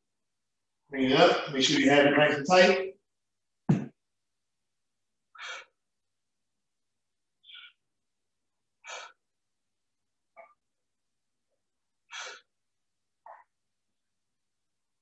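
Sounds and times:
sharp exhales: 0:05.4 - 0:05.8, 0:08.8 - 0:09.2, 0:12.1 - 0:12.5.

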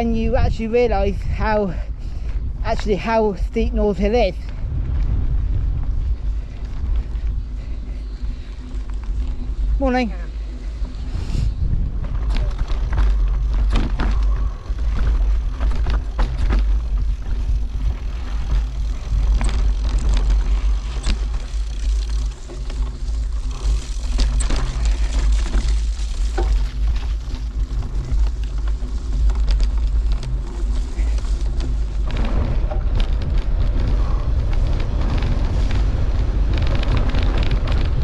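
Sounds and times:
bike knocking and rattling: 0:00.0 - 0:38.0
wind buffeting microphone: 0:00.0 - 0:38.0.

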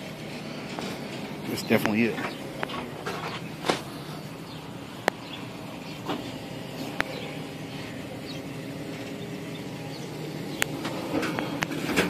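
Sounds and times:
birds chirping: 0:00.0 - 0:11.9
vehicle engine idling: 0:00.0 - 0:12.0.

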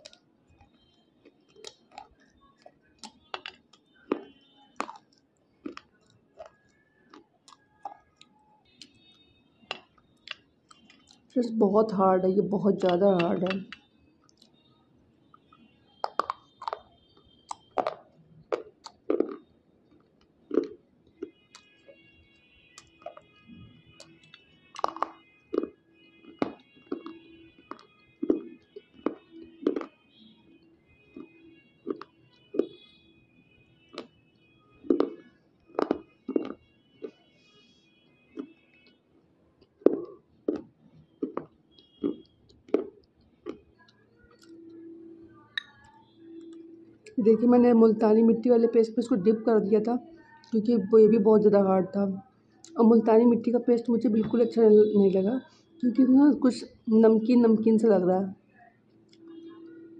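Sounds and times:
chewing: 0:00.0 - 0:11.4, 0:13.2 - 0:14.6, 0:15.3 - 0:30.5, 0:31.1 - 0:32.9, 0:33.9 - 0:34.2, 0:34.8 - 0:37.2, 0:38.3 - 0:39.0, 0:39.6 - 0:44.8
crunching slate between teeth: 0:16.0 - 0:21.3, 0:24.0 - 0:29.9, 0:34.8 - 0:37.2.

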